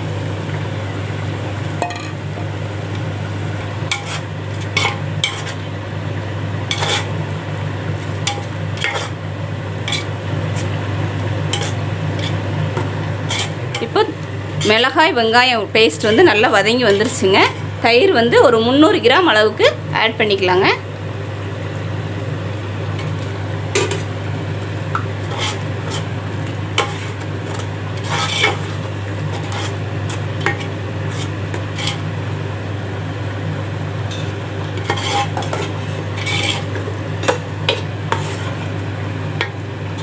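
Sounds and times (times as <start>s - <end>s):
food sizzling: 0.0s - 40.0s
ladle scraping metal pot: 6.7s - 7.1s, 9.8s - 10.7s, 13.2s - 13.9s, 25.2s - 26.1s, 26.8s - 32.1s, 34.1s - 38.7s.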